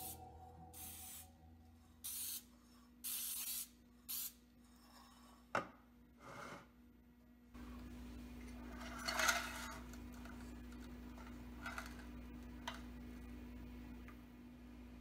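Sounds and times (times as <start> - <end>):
aerosol spray hissing: 0.8 - 1.3, 2.0 - 4.4.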